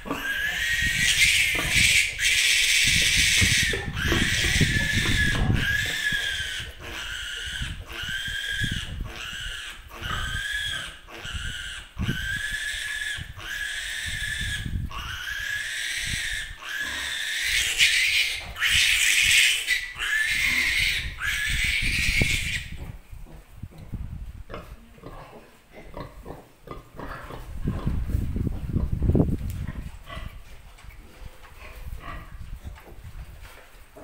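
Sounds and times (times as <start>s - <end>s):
piglet squealing: 0.2s - 22.8s.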